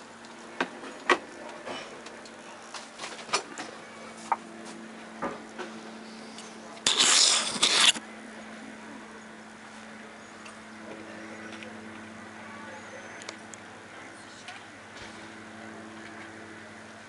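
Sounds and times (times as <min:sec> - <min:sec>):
rubbing on microphone: 0:06.9 - 0:08.0.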